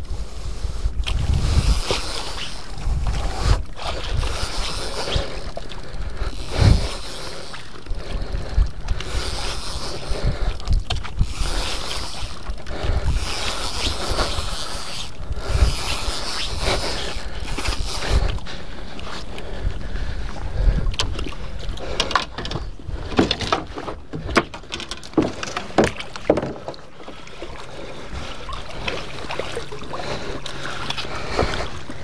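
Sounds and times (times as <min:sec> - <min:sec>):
wind buffeting microphone: 0:00.0 - 0:07.1, 0:07.8 - 0:24.5
fishing reel whirring: 0:00.0 - 0:23.2.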